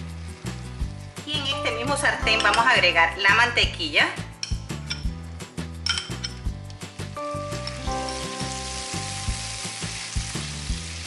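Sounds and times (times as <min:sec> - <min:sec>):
butter sizzling in frying pan: 0:00.0 - 0:02.6, 0:04.6 - 0:11.0
spoon clicking on glass bowl: 0:02.3 - 0:02.8, 0:04.4 - 0:05.1, 0:05.8 - 0:06.5.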